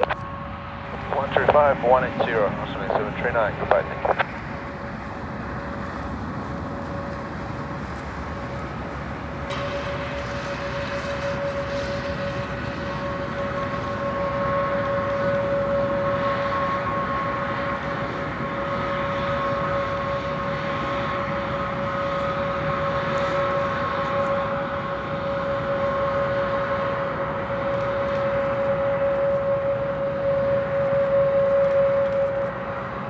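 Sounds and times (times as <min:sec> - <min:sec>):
jet engines whining: 0:00.0 - 0:33.0.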